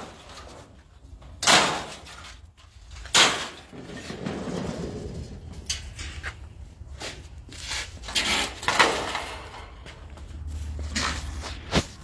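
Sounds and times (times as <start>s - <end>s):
metal tile scraping on concrete: 7.6s - 9.7s.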